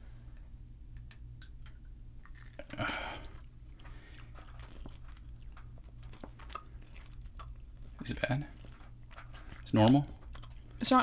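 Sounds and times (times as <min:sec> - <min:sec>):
mouth chewing candy: 0:02.2 - 0:10.8.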